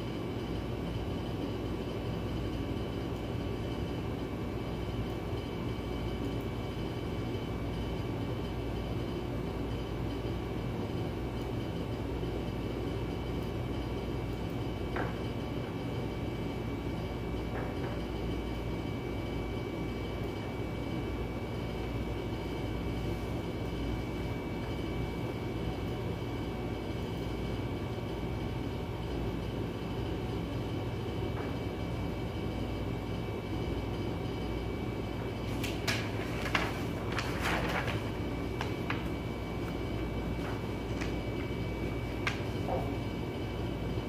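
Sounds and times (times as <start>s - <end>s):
low mechanical hum: 0.0s - 44.0s
paper rustling: 35.2s - 43.0s.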